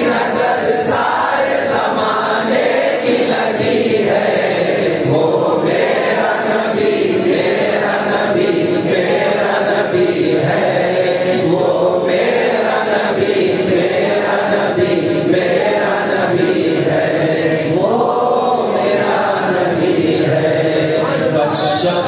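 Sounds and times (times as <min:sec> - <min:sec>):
man chanting: 0:17.5 - 0:22.0.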